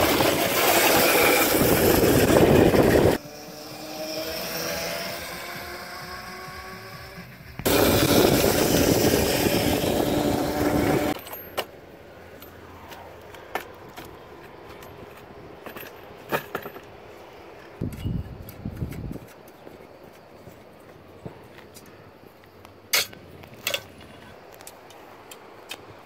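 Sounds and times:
rushing wind and road noise: 0:00.0 - 0:03.2, 0:07.4 - 0:20.0.

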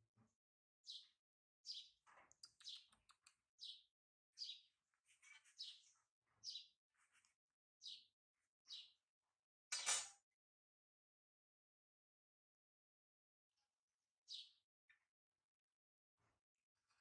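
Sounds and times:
small bird chirping: 0:00.8 - 0:06.8, 0:07.8 - 0:08.1, 0:08.7 - 0:09.0, 0:14.3 - 0:14.6.

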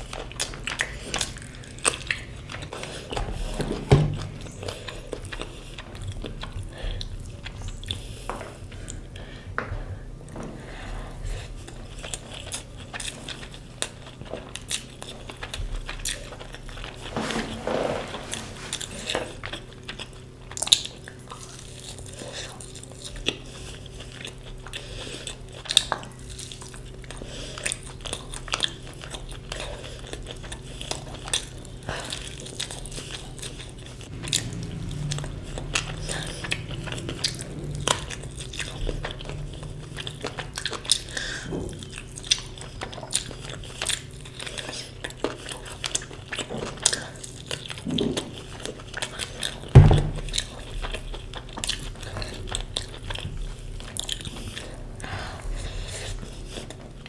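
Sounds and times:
person chewing food: 0:00.0 - 0:57.0
steady low hum: 0:00.0 - 0:57.0
heavy thump: 0:03.6 - 0:04.4, 0:49.7 - 0:50.4.

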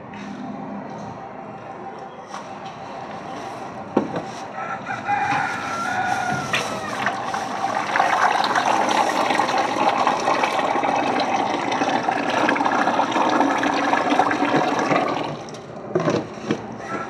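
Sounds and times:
paint gushing into bucket: 0:05.8 - 0:15.6.

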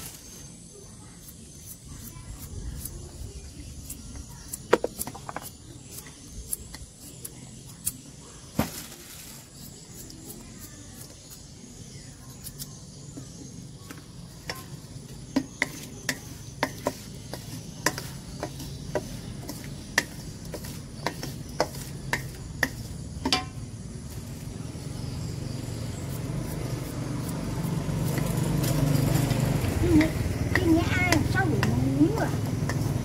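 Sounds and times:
motorbike engine rumble: 0:11.9 - 0:33.0.

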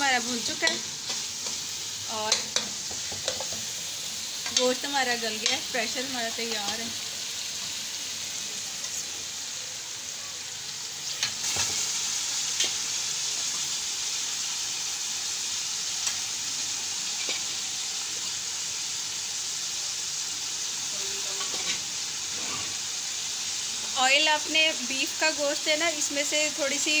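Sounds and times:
masala sizzling in metal pan: 0:00.0 - 0:27.0
metal spoon clicking against pan: 0:02.3 - 0:03.5, 0:04.4 - 0:04.8, 0:05.4 - 0:05.7.

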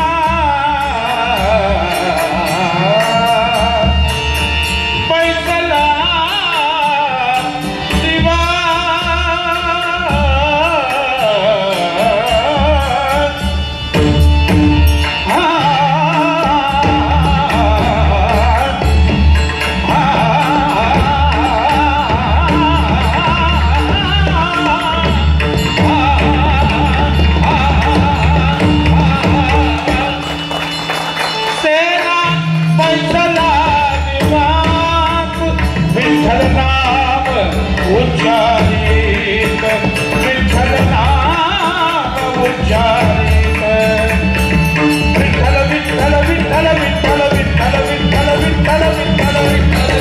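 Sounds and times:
harmonium: 0:00.0 - 0:50.0
man singing devotional song: 0:00.0 - 0:50.0
barrel drum beat: 0:12.6 - 0:50.0.

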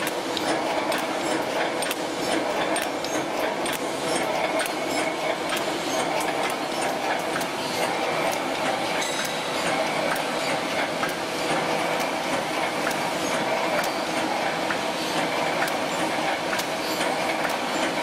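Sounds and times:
sharp machine clicks: 0:00.0 - 0:18.0.

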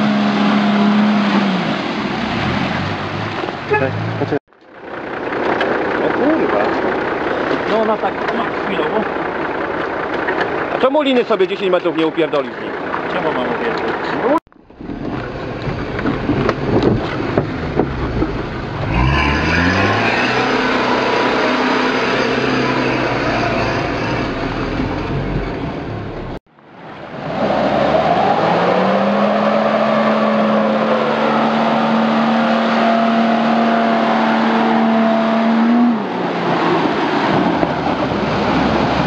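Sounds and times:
suv engine revving through mud: 0:00.0 - 0:04.4, 0:15.0 - 0:26.4, 0:27.1 - 0:39.0
engine running from inside cab: 0:03.7 - 0:11.6.

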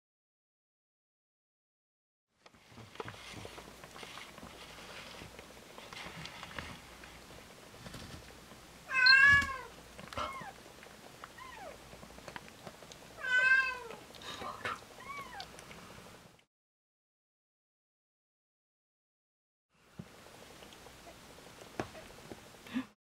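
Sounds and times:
cat meowing: 0:08.9 - 0:10.6, 0:13.2 - 0:14.0, 0:15.0 - 0:15.5.

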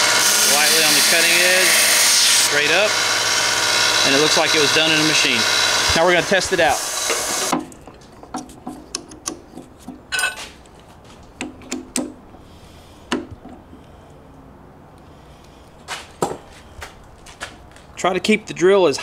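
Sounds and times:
loud machine noise: 0:00.0 - 0:07.5
metallic clicks and taps: 0:07.6 - 0:10.0, 0:10.6 - 0:12.2
ringing metal clink: 0:10.1 - 0:10.4.

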